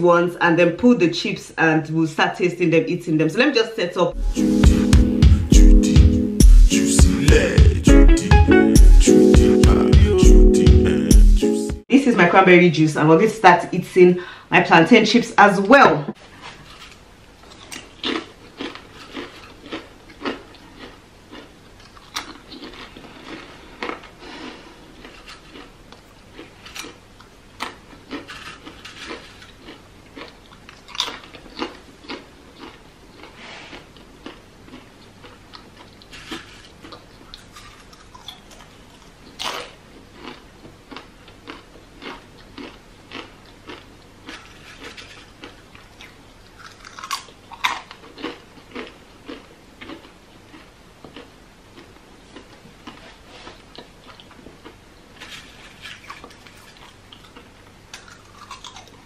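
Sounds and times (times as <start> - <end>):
crunching chips: 16.3 - 59.0.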